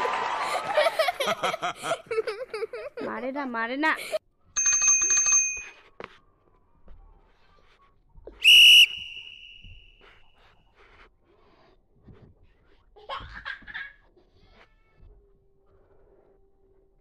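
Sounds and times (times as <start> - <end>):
whistle blowing: 8.4 - 10.3.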